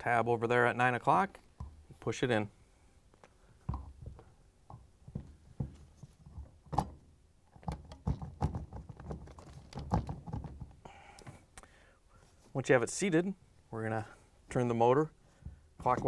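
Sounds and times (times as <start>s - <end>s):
knocks and thumps of plastic parts: 1.5s - 2.0s, 3.6s - 11.4s, 15.4s - 16.0s.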